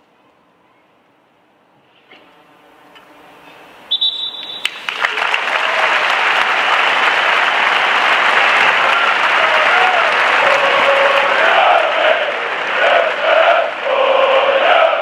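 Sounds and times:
stadium crowd cheering and applauding: 4.0s - 15.0s.

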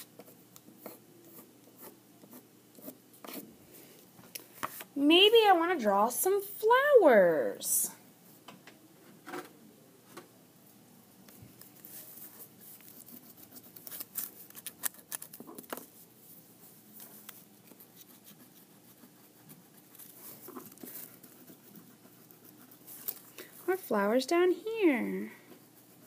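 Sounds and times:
crayons scratching on paper: 11.8s - 15.1s, 17.7s - 24.1s, 24.9s - 26.0s.

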